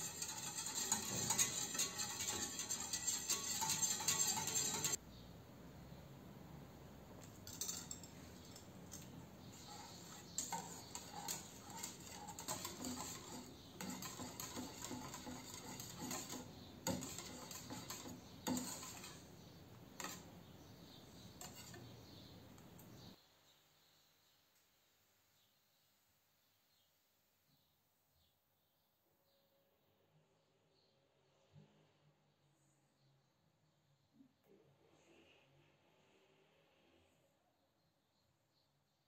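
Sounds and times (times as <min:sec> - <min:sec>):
whisk scraping metal saucepan: 0:00.0 - 0:05.0, 0:07.3 - 0:22.3.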